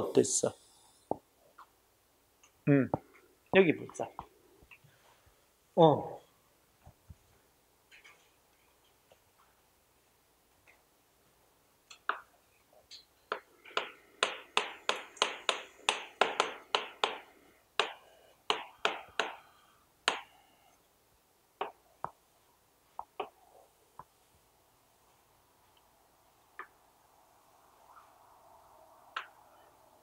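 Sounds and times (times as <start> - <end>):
chalk tapping on chalkboard: 13.3 - 19.4.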